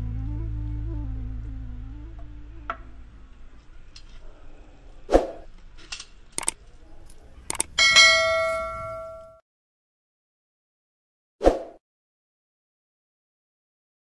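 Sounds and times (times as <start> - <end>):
short clicks and knocks: 6.4 - 6.6, 7.5 - 7.7
bright bell chime: 7.8 - 9.4.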